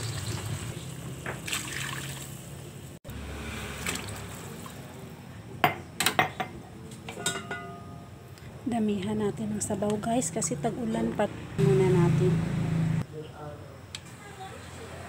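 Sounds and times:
water pouring into pan: 0.0 - 2.5.

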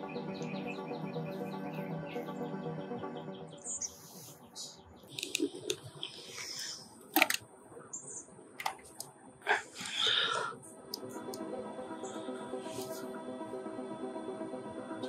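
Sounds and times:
plastic button clicks: 7.1 - 7.4.

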